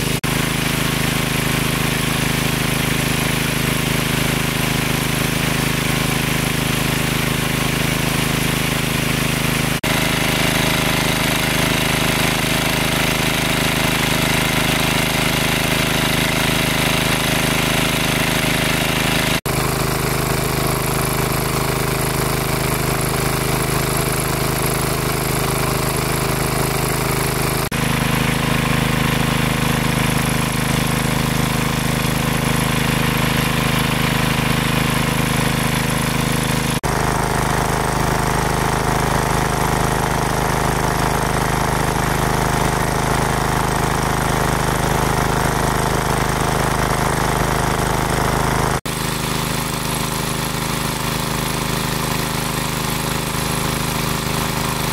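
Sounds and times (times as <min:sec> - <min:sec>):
engine-driven water pump running: 0:00.0 - 0:54.9.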